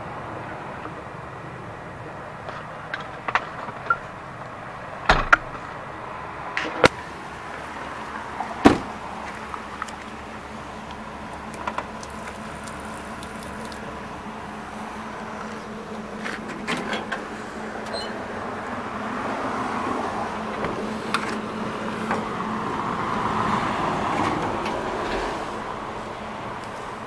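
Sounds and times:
truck doors knocking and clicking: 5.0 - 5.8, 8.6 - 9.6, 20.4 - 22.5.

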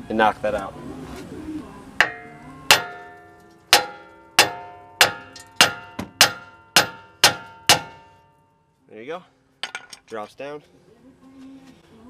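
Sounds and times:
hammer striking steel: 2.0 - 8.4.

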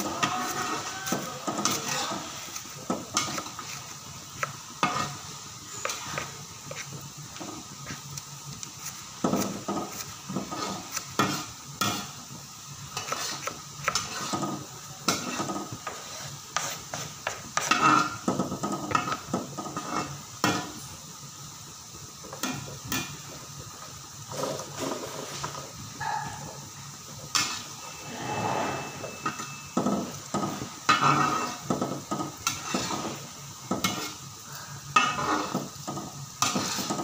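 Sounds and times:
shallots sizzling in oil: 0.0 - 37.0
metal spatula scraping a wok: 0.1 - 4.1, 4.7 - 7.0, 9.6 - 12.2, 12.9 - 20.8, 27.3 - 37.0.

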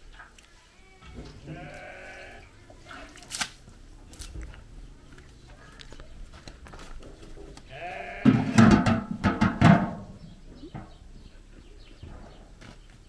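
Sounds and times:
farm animal bleating: 0.7 - 3.0, 7.7 - 8.9.

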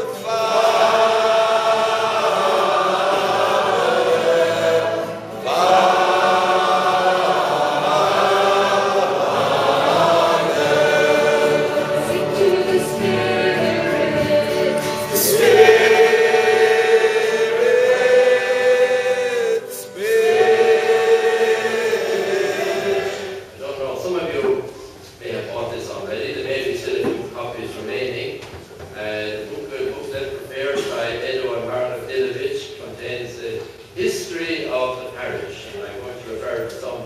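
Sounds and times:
choir and congregation singing: 0.0 - 24.4.

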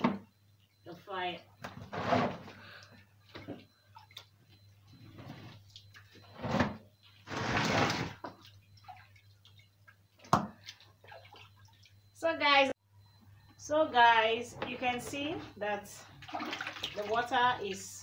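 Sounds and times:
water splashing in a bucket: 7.2 - 12.0, 16.1 - 18.0.

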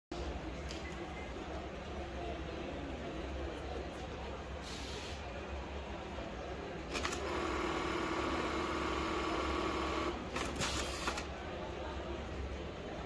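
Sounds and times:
sewing machine whine: 6.9 - 11.2.

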